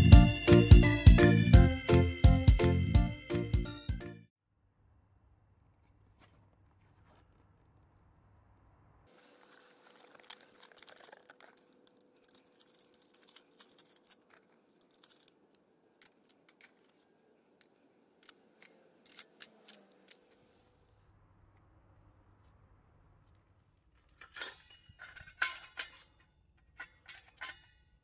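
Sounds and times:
handling rustling: 9.1s - 20.8s
metal clicks and clinks: 9.6s - 20.8s.

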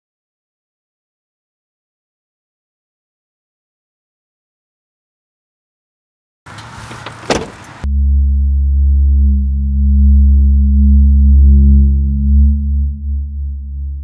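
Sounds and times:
low electronic drone: 7.8s - 14.0s.

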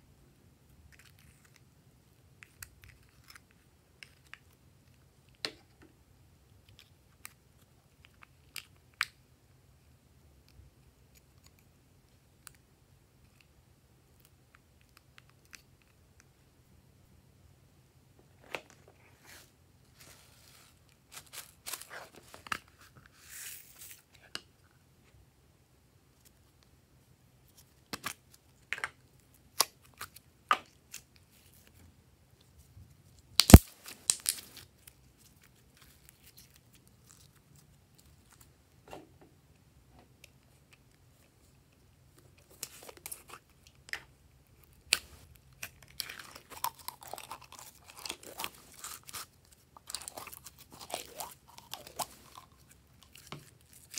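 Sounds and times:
slime crackling and popping: 33.3s - 37.3s.

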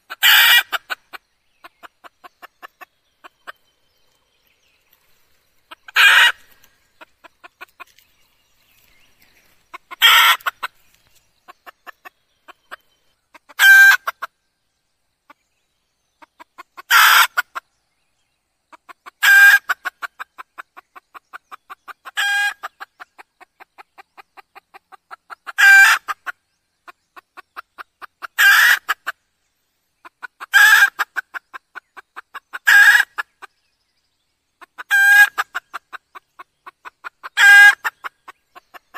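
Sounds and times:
hen loud clucking calls: 0.0s - 3.8s, 5.6s - 8.1s, 9.6s - 14.3s, 16.2s - 17.6s, 18.7s - 29.2s, 30.0s - 33.5s, 34.6s - 38.9s.

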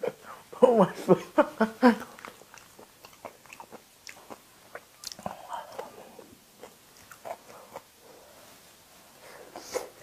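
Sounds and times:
person chewing food: 1.8s - 8.4s.

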